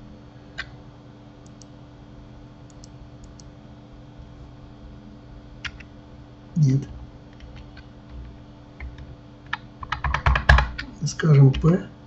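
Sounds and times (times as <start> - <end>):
low steady hum: 0.0 - 12.0
computer mouse and keyboard clicks: 1.4 - 1.7, 2.7 - 3.5, 5.6 - 5.9, 7.3 - 11.7.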